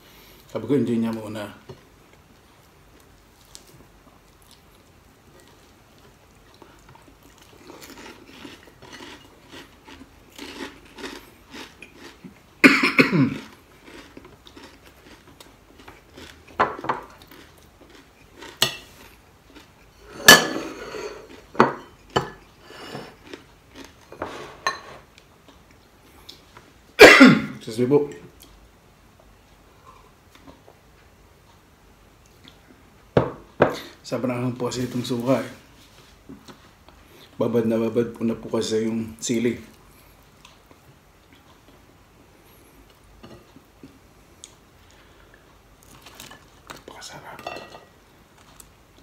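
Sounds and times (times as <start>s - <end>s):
chewing crispy food: 2.4s - 12.6s, 13.3s - 20.0s, 21.2s - 24.2s, 39.6s - 47.2s, 48.2s - 49.0s
plates clinking on table: 24.2s - 25.0s, 47.4s - 47.9s
small crackles: 45.8s - 47.1s.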